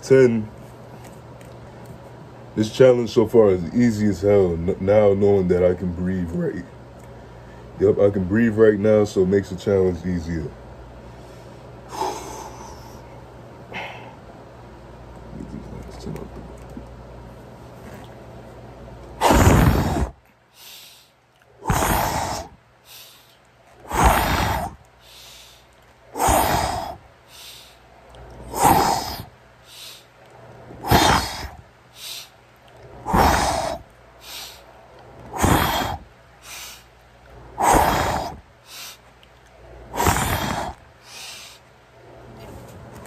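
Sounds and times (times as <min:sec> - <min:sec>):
man breathing hard: 0:11.1 - 0:14.3, 0:19.2 - 0:30.2, 0:30.8 - 0:32.4, 0:33.0 - 0:34.7, 0:35.3 - 0:36.9, 0:37.5 - 0:39.0, 0:39.9 - 0:41.7.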